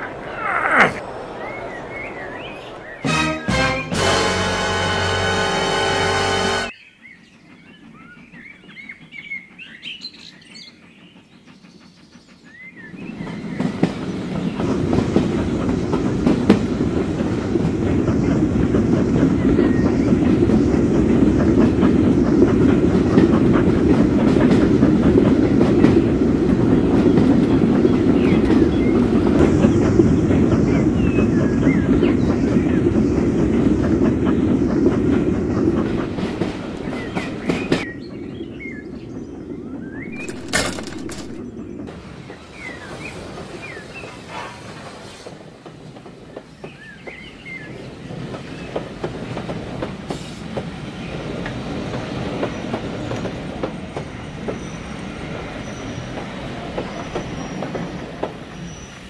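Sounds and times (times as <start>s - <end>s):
model train rolling on track: 1.3s - 59.0s.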